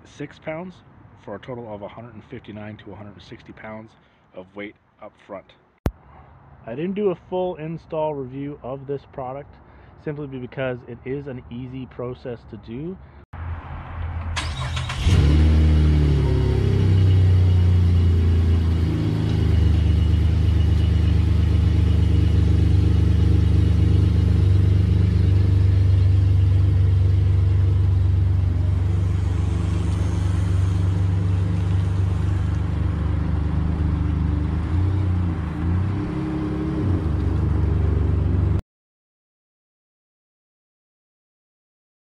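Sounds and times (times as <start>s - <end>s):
pickup truck engine running: 16.3s - 35.6s.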